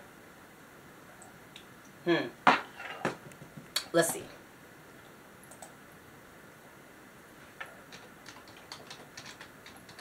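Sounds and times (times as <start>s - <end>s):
tapping on computer keyboard: 7.9s - 10.0s.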